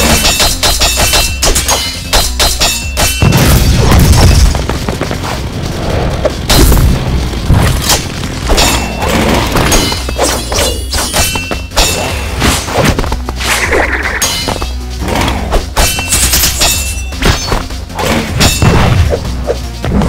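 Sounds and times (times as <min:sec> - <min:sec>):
metal clashes: 0:00.0 - 0:04.6, 0:07.7 - 0:12.7, 0:13.4 - 0:14.9, 0:15.6 - 0:19.0
driving background music: 0:00.0 - 0:20.0.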